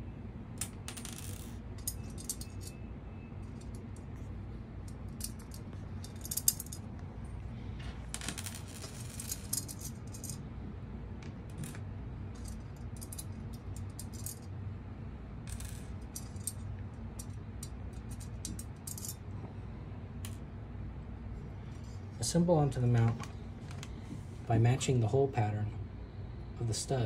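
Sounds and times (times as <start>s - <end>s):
low hum: 0.0s - 27.0s
metal washers and nuts clinking: 0.6s - 7.0s, 8.1s - 10.4s, 11.5s - 14.6s, 15.5s - 19.3s.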